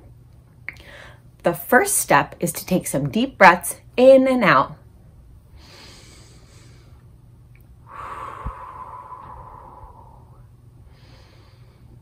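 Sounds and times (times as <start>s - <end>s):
woman breathing deeply: 0.8s - 1.3s, 5.5s - 7.1s, 7.8s - 12.0s.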